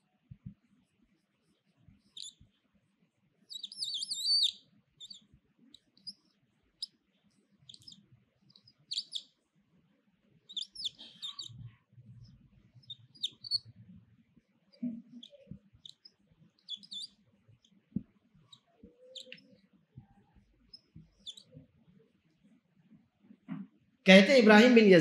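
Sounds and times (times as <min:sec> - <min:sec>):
birds chirping and trilling: 0:03.5 - 0:05.2, 0:10.5 - 0:11.6, 0:15.2 - 0:17.2.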